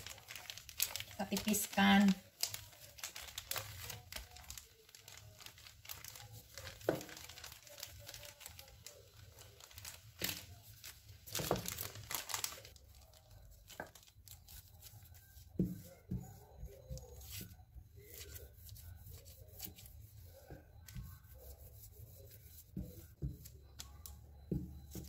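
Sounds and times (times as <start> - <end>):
rolling pin scraping dough: 13.8 - 25.0.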